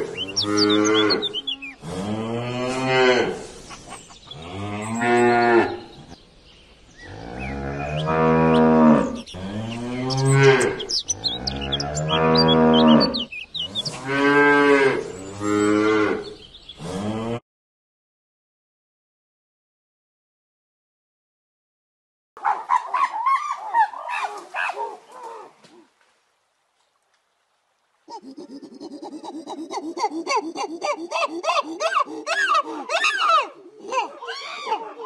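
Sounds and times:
cows mooing: 0:00.0 - 0:03.5, 0:04.4 - 0:05.9, 0:07.0 - 0:17.4.

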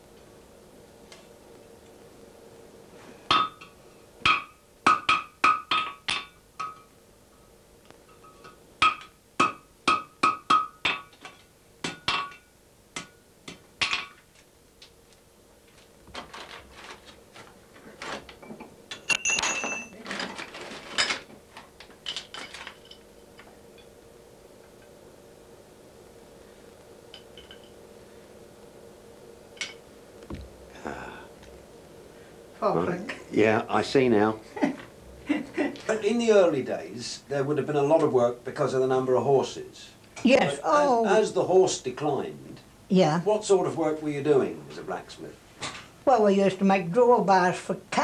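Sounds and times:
hammer striking iron on anvil: 0:04.2 - 0:06.8, 0:08.8 - 0:11.1
light metal clinks: 0:18.9 - 0:20.0.

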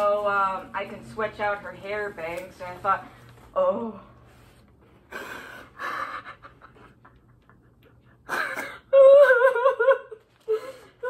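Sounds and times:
person sobbing: 0:05.2 - 0:11.0.

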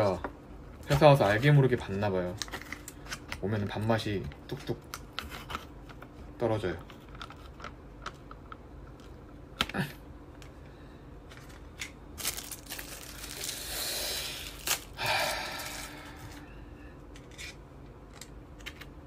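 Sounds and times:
plastic wrapper tearing: 0:12.2 - 0:15.9.

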